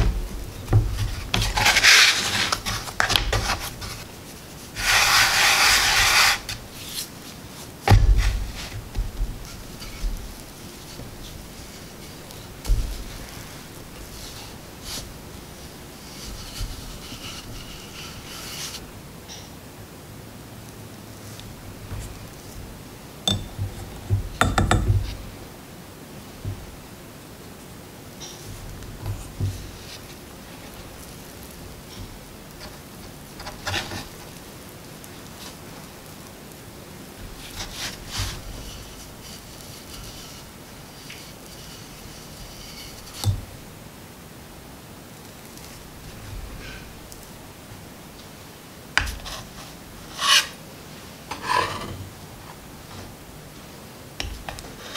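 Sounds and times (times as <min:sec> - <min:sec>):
rolling pin rubbing on dough: 0:00.0 - 0:18.8, 0:37.2 - 0:43.4, 0:49.0 - 0:50.6
faint steady hiss: 0:00.0 - 0:54.9
hands pressing dough: 0:21.7 - 0:25.4.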